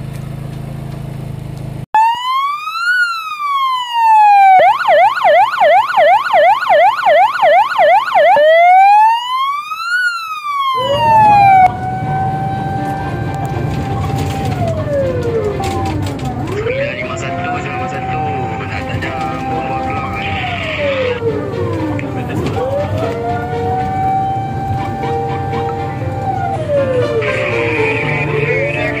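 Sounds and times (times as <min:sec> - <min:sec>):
truck engine rumble: 0:00.0 - 0:01.9, 0:10.7 - 0:29.0
electronic siren wail and yelp: 0:02.0 - 0:29.0
fire engine siren: 0:02.0 - 0:29.0.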